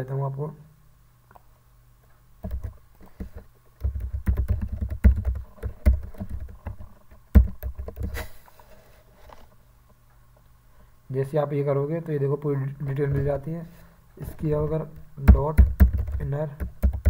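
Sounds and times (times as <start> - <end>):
keyboard key clicks: 2.4 - 8.2.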